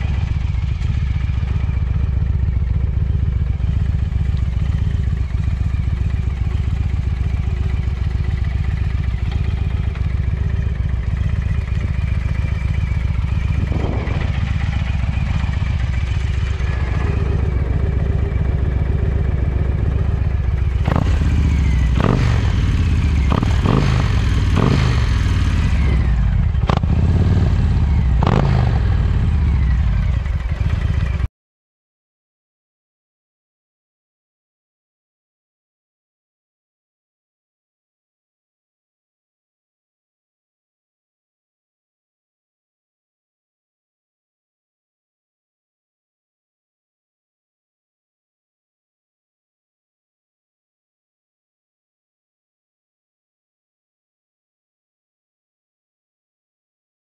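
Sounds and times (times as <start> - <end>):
motorcycle engine idling and revving: 0.0 - 31.3.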